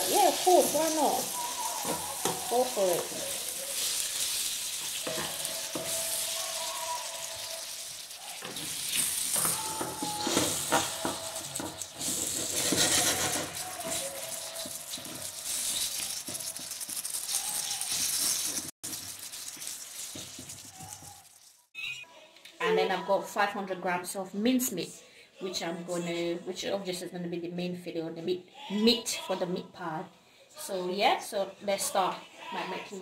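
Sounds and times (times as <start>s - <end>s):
wooden spoon scraping a pan: 0.0s - 21.2s
meat sizzling in a frying pan: 0.0s - 21.7s.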